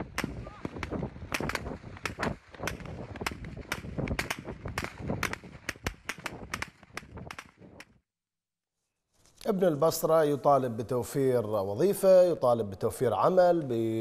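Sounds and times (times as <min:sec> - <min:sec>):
rapid gunfire: 0:00.0 - 0:07.8.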